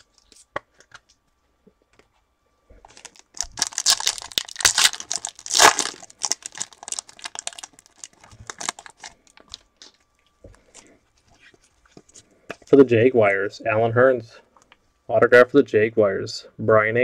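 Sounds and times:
foil wrapper crinkling: 0:02.9 - 0:10.0.

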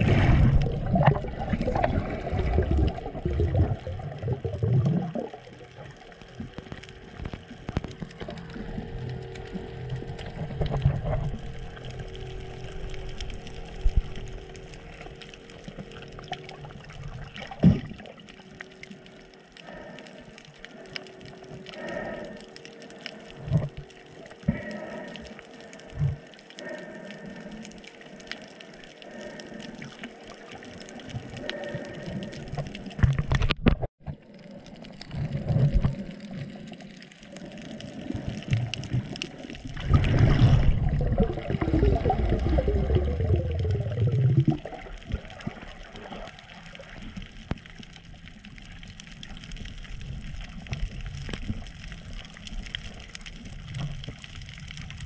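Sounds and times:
water churning: 0:00.0 - 0:55.0
water sloshing and gurgling: 0:00.0 - 0:55.0.

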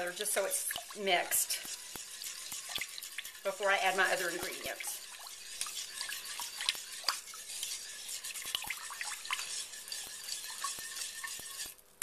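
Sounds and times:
whisk swishing in thick liquid: 0:00.0 - 0:12.0
whisk wires clicking on crock: 0:01.5 - 0:03.2.

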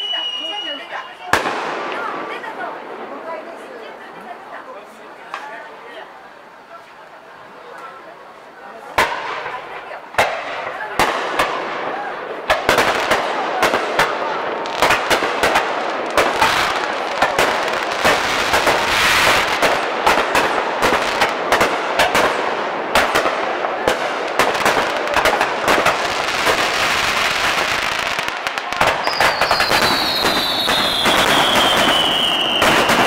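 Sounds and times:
whistle gliding down in pitch: 0:00.0 - 0:01.2
firework shells bursting: 0:08.9 - 0:33.0.

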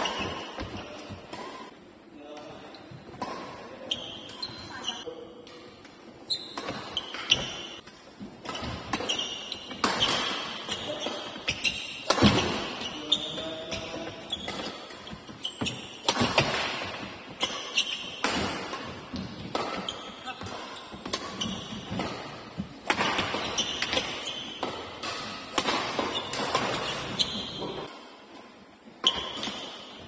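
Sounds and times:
shoes squeaking on court floor: 0:00.0 - 0:01.7, 0:02.7 - 0:30.0
rackets hitting shuttlecock: 0:05.4 - 0:28.0, 0:28.9 - 0:30.0.

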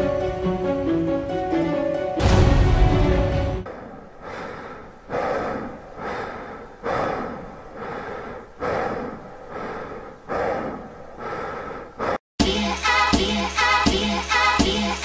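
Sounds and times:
person breathing hard: 0:03.7 - 0:12.2.

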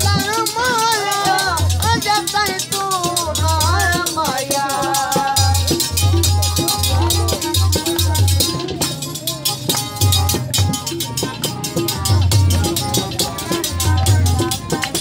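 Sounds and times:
man singing: 0:00.0 - 0:10.1
harmonium: 0:00.0 - 0:15.0
tabla drums: 0:00.0 - 0:15.0.

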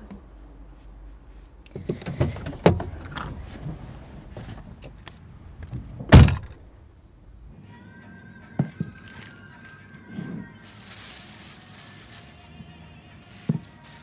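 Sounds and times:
low car interior rumble: 0:00.0 - 0:07.8
car door shutting: 0:01.7 - 0:06.6.

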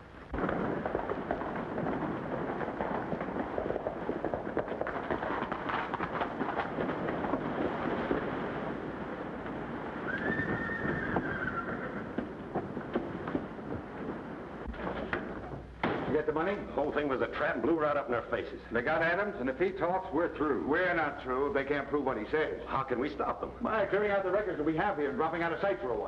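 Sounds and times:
horse hoofbeats on dirt: 0:00.0 - 0:17.8
horse whinny: 0:10.0 - 0:12.2.

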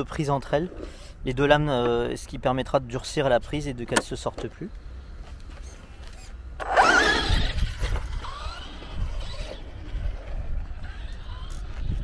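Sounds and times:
toy truck electric motor whining: 0:06.2 - 0:12.0.

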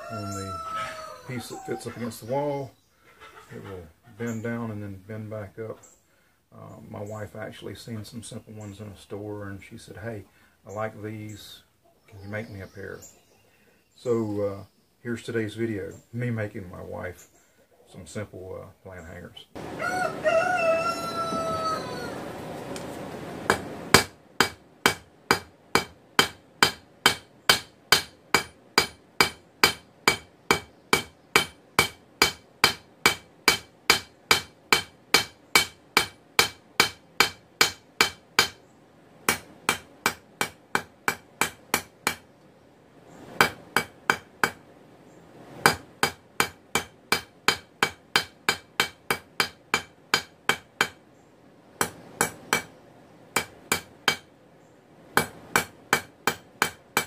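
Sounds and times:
hammer striking hot steel on anvil: 0:23.5 - 0:38.6, 0:43.4 - 0:44.6, 0:45.6 - 0:51.0, 0:51.8 - 0:52.7, 0:53.4 - 0:54.3, 0:55.2 - 0:57.0.

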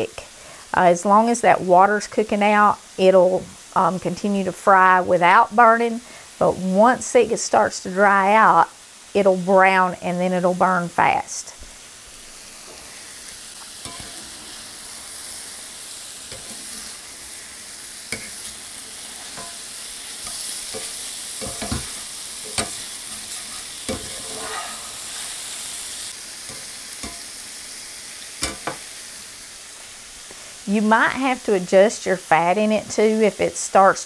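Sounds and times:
vegetables sizzling in a skillet: 0:00.0 - 0:34.0
metal spatula scraping a pan: 0:13.8 - 0:15.4, 0:16.2 - 0:17.4, 0:18.0 - 0:25.9.

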